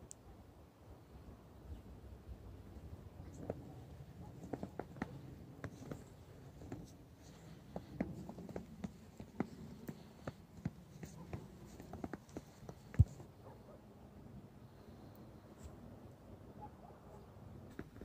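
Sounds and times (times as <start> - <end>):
footsteps crunching on snow: 4.4 - 13.3.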